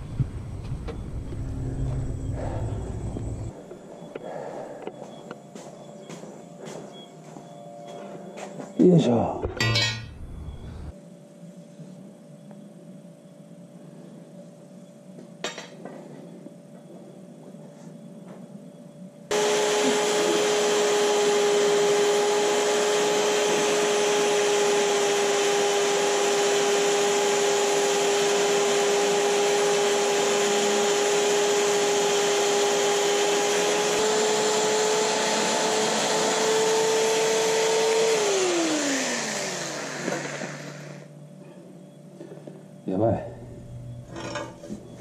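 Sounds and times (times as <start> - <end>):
cordless drill grinding rusty pipe: 19.3 - 41.1.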